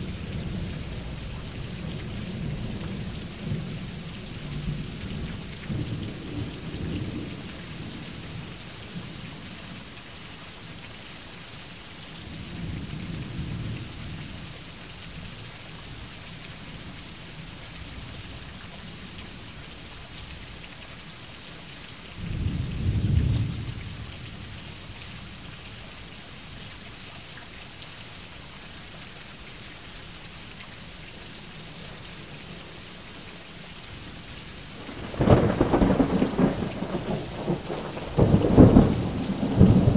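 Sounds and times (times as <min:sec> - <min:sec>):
steady rain: 0:00.0 - 0:39.9
rolling thunder: 0:34.8 - 0:39.9.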